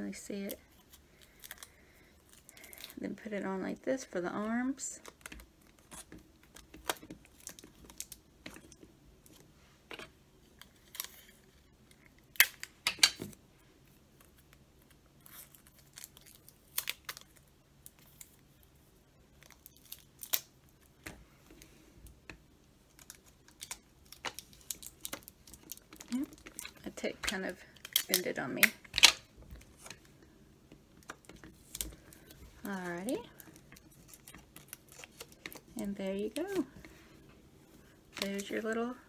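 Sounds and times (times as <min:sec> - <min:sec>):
candy wrappers crinkling: 0:00.4 - 0:03.4, 0:14.2 - 0:21.0, 0:22.8 - 0:30.2, 0:30.9 - 0:36.8, 0:38.1 - 0:39.0.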